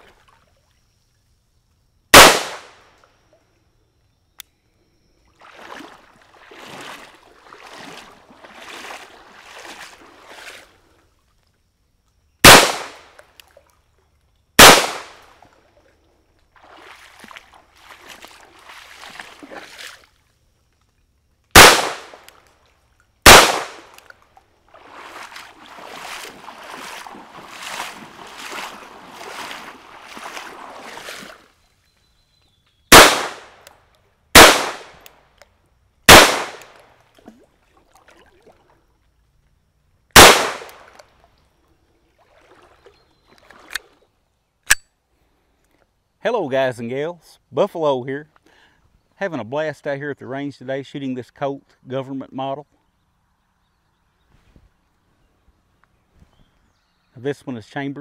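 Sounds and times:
pistol shots: 2.1 - 2.8, 12.4 - 13.1, 14.6 - 15.2, 21.6 - 22.2, 23.2 - 23.9, 32.9 - 33.6, 34.4 - 35.0, 36.1 - 36.8, 40.2 - 40.9.

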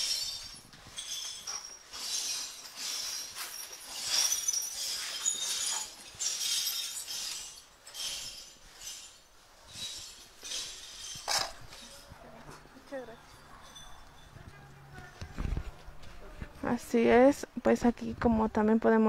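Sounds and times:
broken glass being swept: 0.0 - 12.2.

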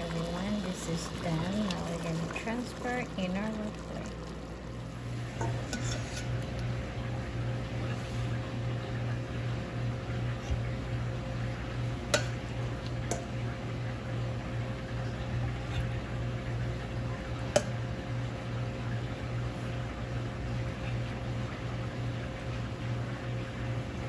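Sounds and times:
low kitchen hum: 0.0 - 24.0
utensil clinking on cookware: 5.4 - 6.3, 12.2 - 12.4.

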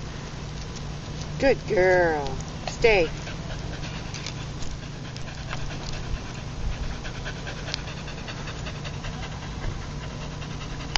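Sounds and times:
dog panting: 2.7 - 10.9.

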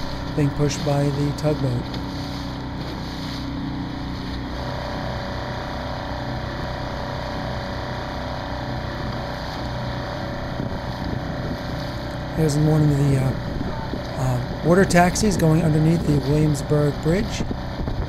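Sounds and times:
boat motor running: 0.0 - 18.0
steady hum: 0.0 - 18.0
water noise: 0.0 - 18.0
wind noise on microphone: 10.2 - 18.0.

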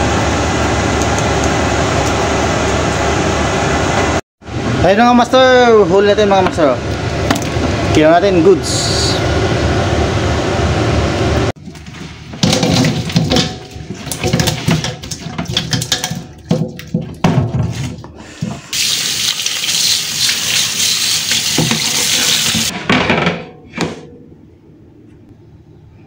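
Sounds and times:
fish clattering in metal colander: 12.3 - 18.0
tap running: 18.4 - 22.7.

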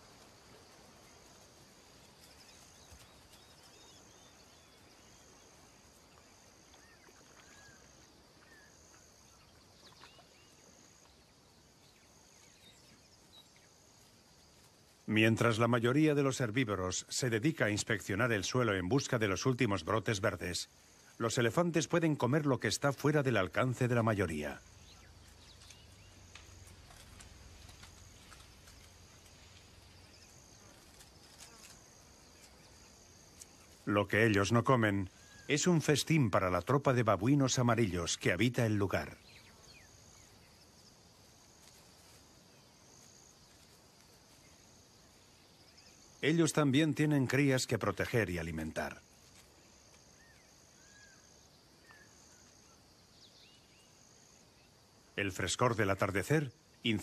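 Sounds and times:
high insect trills: 0.0 - 57.0
faint clicks: 25.3 - 29.7.

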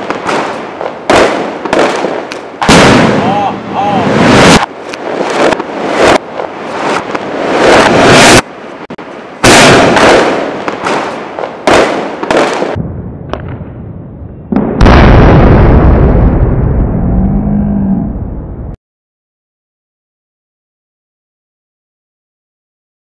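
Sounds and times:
fireworks bangs and bursts: 0.0 - 13.8
deep heavy boom: 2.6 - 4.6, 12.7 - 18.8.

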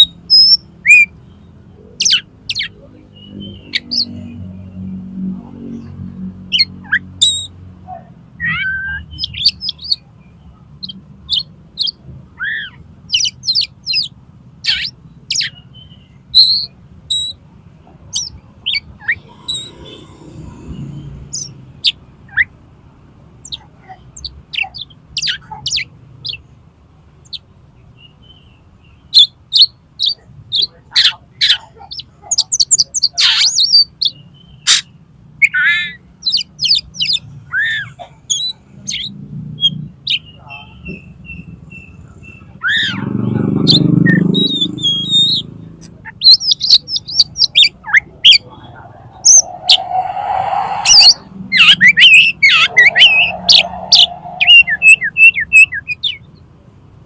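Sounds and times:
bird song whistles and chirps: 8.4 - 10.0, 10.8 - 17.4, 28.0 - 45.5, 46.2 - 56.3.

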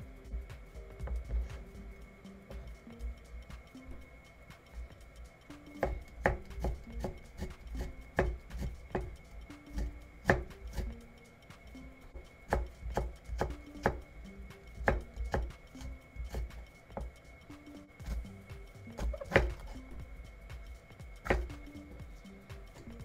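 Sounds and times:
knife chopping on cutting board: 5.8 - 9.1, 9.7 - 10.9, 12.5 - 14.0, 14.8 - 15.6, 19.0 - 19.8, 21.2 - 21.6.

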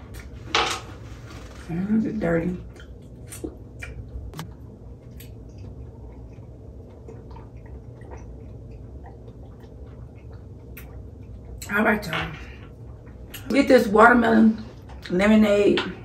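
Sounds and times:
faint chewing: 2.6 - 15.2.

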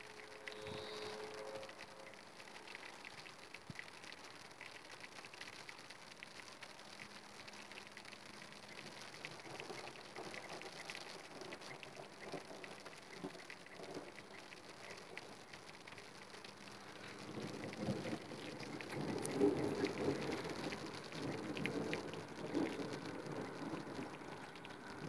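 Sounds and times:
raindrops ticking: 0.0 - 25.0
steady rain falling: 0.0 - 25.0.

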